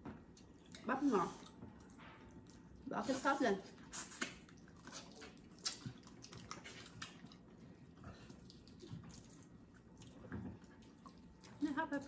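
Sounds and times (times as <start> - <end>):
shells cracking and chewing: 3.9 - 7.6.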